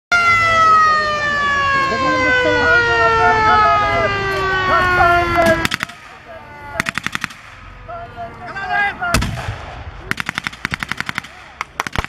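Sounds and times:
single loud gunshot: 9.2s - 9.8s
automatic gunfire bursts: 10.1s - 12.0s.

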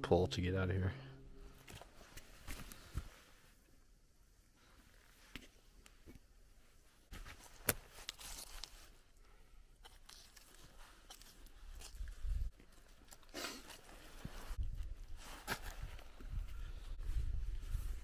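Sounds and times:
cloth bags and tarp rustling: 10.0s - 18.0s.

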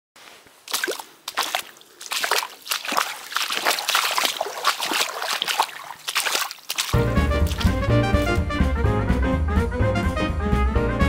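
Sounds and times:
boots splashing through a puddle: 0.2s - 8.4s.

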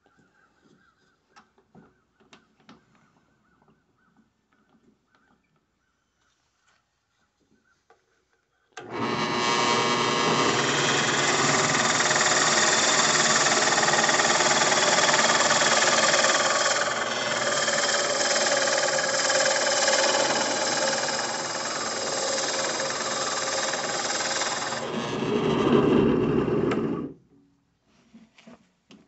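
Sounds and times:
drill press running: 8.8s - 27.1s.

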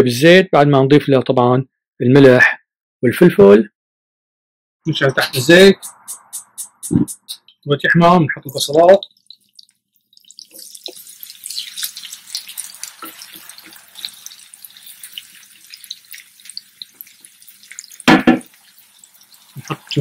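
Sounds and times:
onion sizzling in hot oil: 8.6s - 20.0s.

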